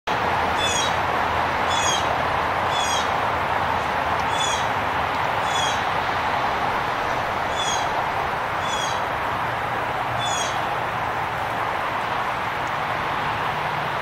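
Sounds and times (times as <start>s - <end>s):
bird calling: 0.6s - 1.0s, 1.7s - 2.1s, 2.7s - 3.2s, 4.2s - 4.8s, 5.4s - 5.9s, 7.5s - 8.0s, 8.6s - 9.1s, 10.2s - 10.7s.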